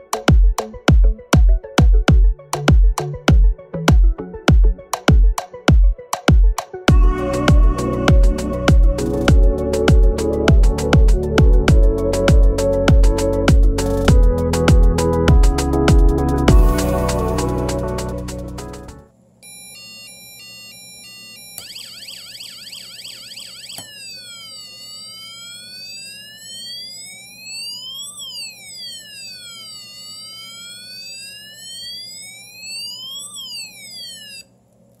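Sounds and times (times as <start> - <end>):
electronic siren through small speaker: 6.9 - 34.6.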